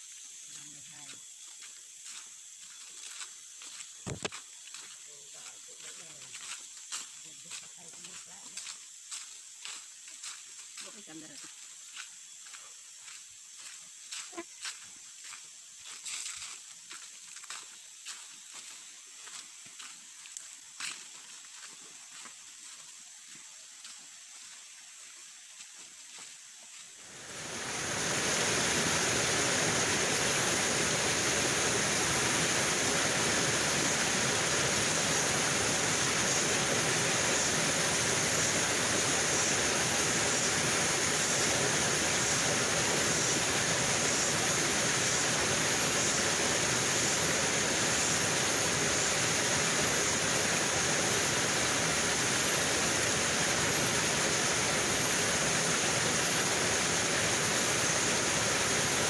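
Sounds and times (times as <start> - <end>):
rushing stream water: 27.0 - 59.0.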